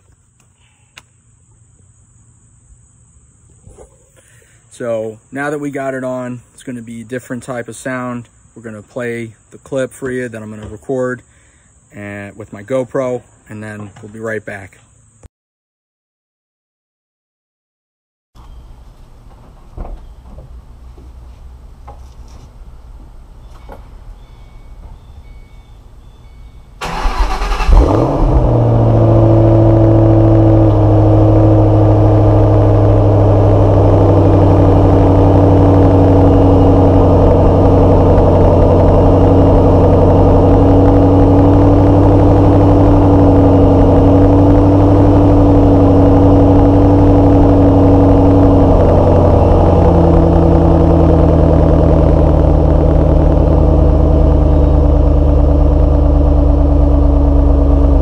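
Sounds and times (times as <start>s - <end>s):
car engine revving and idling: 26.8s - 58.0s.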